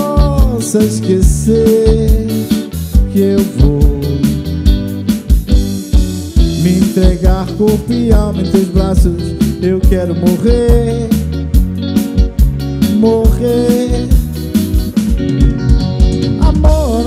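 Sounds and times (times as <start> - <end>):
bass guitar: 0.0 - 17.0
drum kit: 0.0 - 17.0
electric guitar: 0.0 - 17.0
keyboard: 0.0 - 17.0.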